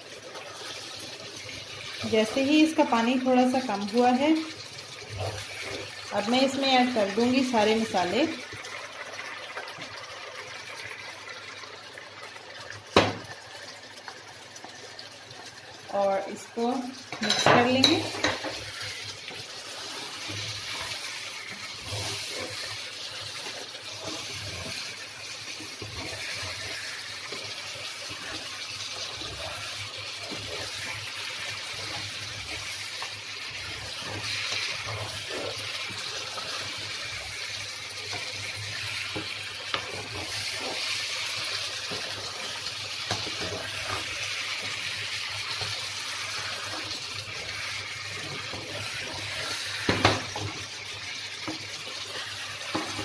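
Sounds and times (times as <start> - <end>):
chicken sizzling in a wok: 0.0 - 53.0
wooden spatula scraping and tapping: 17.1 - 50.7, 51.3 - 53.0.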